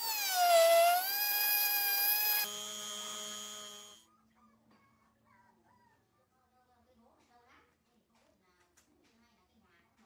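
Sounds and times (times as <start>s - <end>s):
rotary tool grinding metal: 0.0s - 4.0s.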